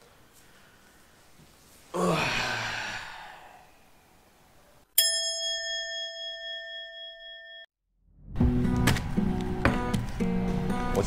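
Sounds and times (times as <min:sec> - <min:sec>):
man sighing loudly: 0:01.9 - 0:03.8
bell-like ding ringing: 0:05.0 - 0:07.7.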